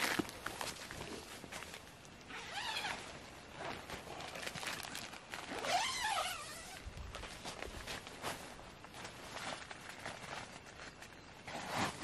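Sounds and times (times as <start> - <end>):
rustling and handling of gear: 0.0 - 12.0
tent zipper rasping: 2.3 - 4.4, 5.4 - 6.9.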